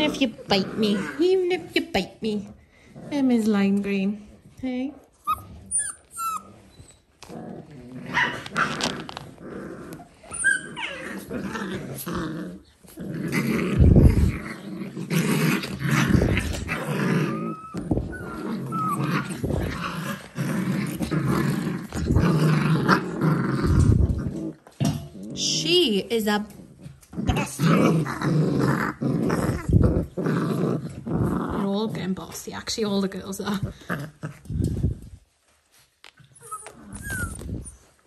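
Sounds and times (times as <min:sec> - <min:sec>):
puppies play-growling and yapping: 0:00.0 - 0:38.0
puppy whines: 0:05.2 - 0:07.3, 0:09.9 - 0:11.3, 0:16.5 - 0:19.5, 0:36.2 - 0:38.0.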